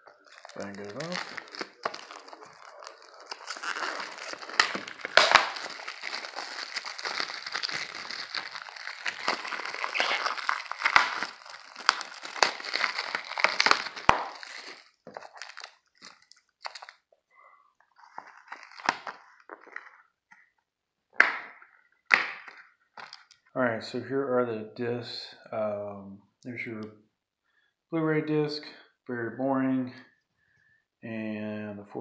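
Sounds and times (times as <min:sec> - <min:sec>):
plastic shrink wrap crinkling: 0:00.0 - 0:17.1, 0:17.8 - 0:20.1, 0:22.3 - 0:23.4.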